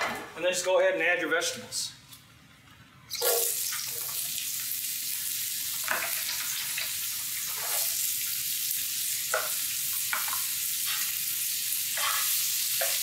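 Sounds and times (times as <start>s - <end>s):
vegetables sizzling in a skillet: 3.1s - 13.0s.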